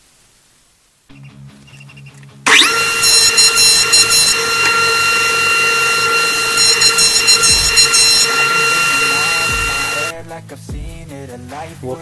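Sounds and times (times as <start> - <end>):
blades shaving wood: 2.5 - 10.3
electric planer whining: 2.5 - 10.3.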